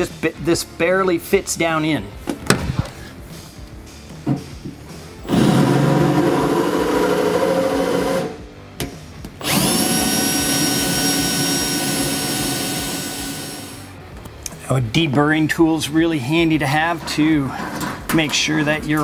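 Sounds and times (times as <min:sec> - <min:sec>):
cordless drill cutting through steel: 0:09.4 - 0:13.9.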